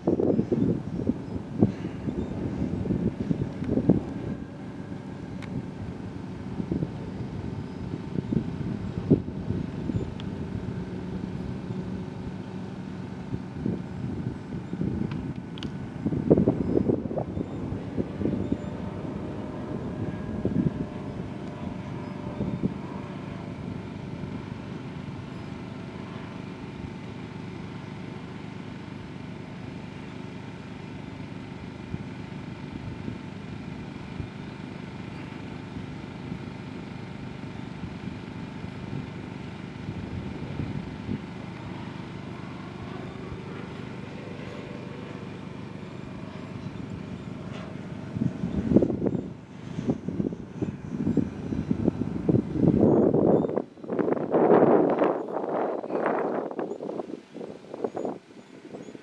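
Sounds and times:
wind gusts on microphone: 0.0 - 27.0, 38.8 - 44.0, 46.5 - 59.0
distant model plane propeller drone: 0.0 - 59.0.

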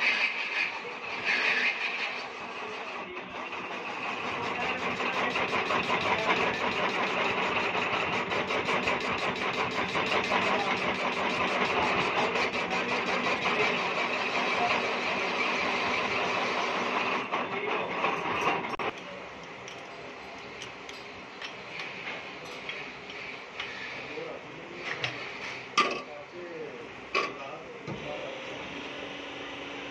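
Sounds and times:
metal lathe cutting clatter: 0.0 - 19.0.

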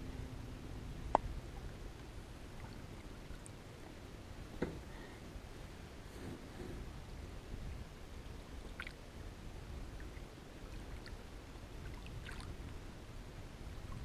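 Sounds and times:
low wind rumble: 0.0 - 14.0
small water splashes: 8.7 - 9.1, 10.0 - 12.8
water lapping against boat: 10.0 - 12.8.

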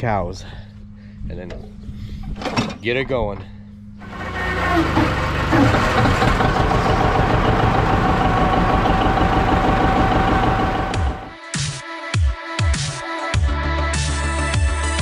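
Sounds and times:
tractor engine idling: 4.0 - 11.4.

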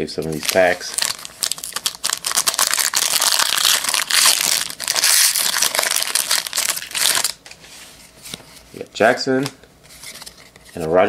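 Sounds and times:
foil wrapper crinkling and tearing: 0.3 - 7.6.

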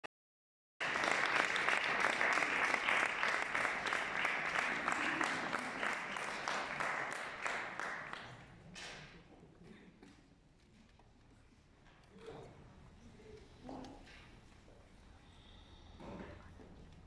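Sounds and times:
audience applauding: 0.8 - 8.5.

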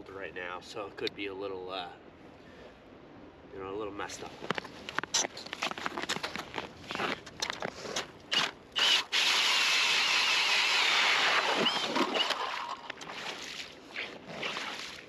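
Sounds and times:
ice auger grinding into ice: 7.9 - 12.6.

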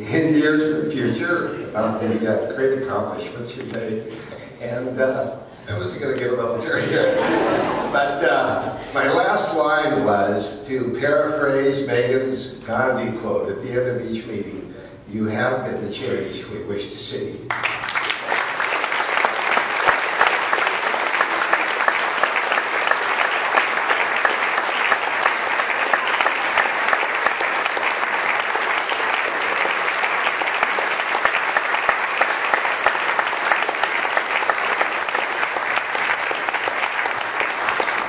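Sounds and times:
audience applauding: 17.5 - 38.0.

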